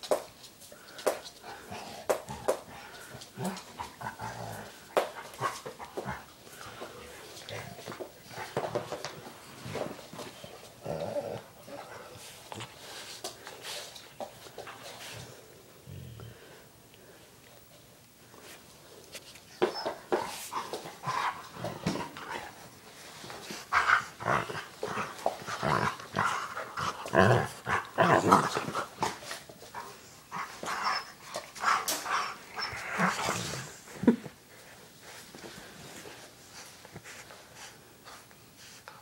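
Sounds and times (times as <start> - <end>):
dogs play growling: 1.4 - 13.8, 19.6 - 34.2.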